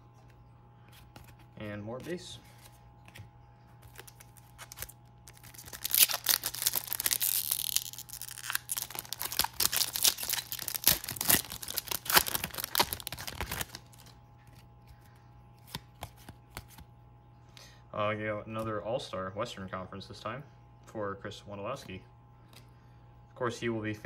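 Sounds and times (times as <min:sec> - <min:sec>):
foil pack ripping: 0:03.8 - 0:14.2
wrapper crinkling: 0:03.8 - 0:14.5.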